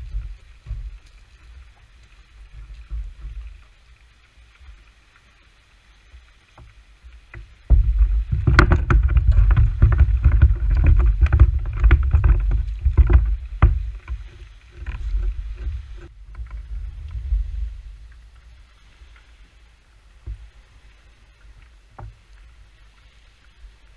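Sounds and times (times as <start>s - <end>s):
knocks and rubbing on plastic kayak: 7.4s - 16.1s
low rumble: 7.6s - 18.7s.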